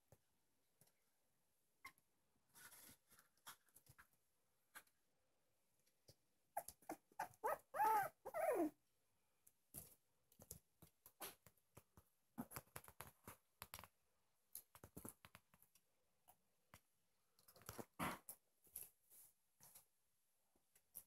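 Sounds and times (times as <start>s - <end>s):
puppy whimpering and whining: 6.6s - 8.8s
soft clicks and rustles: 9.5s - 20.0s.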